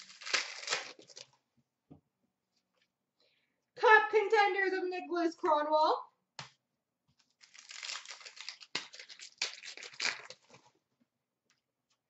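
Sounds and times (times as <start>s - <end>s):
wrapper crinkling and rustling: 0.0s - 1.4s, 7.2s - 10.8s.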